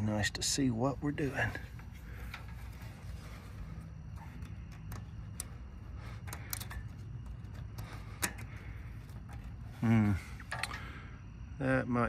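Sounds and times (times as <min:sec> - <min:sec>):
low steady hum: 0:00.0 - 0:12.0
light clicks and taps of wires: 0:01.6 - 0:10.9.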